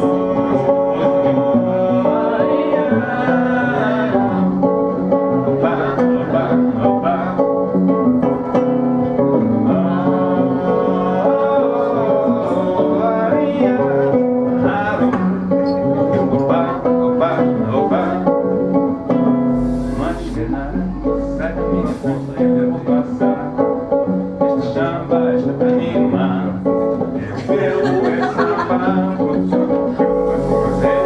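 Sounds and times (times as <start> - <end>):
people singing along: 0.0 - 18.7, 27.0 - 31.0
electric guitar strummed samba rhythm: 0.0 - 31.0.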